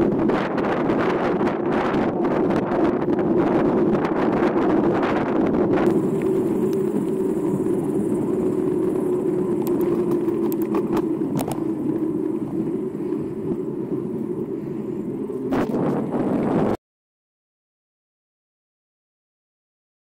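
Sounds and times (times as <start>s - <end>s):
bike tyres rolling on asphalt: 0.0s - 16.8s
bike rattling clicks: 5.7s - 16.2s.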